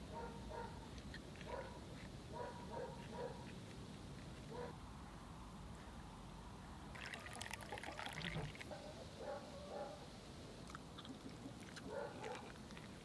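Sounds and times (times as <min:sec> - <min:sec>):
tea pouring into cup: 0:06.9 - 0:08.7.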